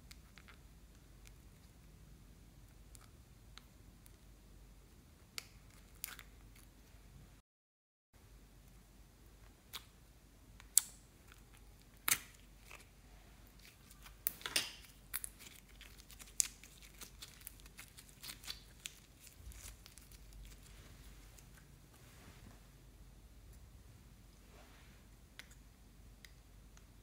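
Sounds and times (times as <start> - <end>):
slime being stretched and torn: 13.6 - 20.7.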